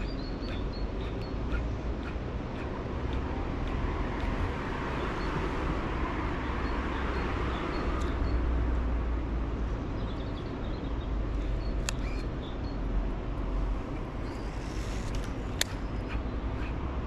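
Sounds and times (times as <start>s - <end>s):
sharp clicks: 0.0s - 4.4s, 11.7s - 12.4s, 15.0s - 16.8s.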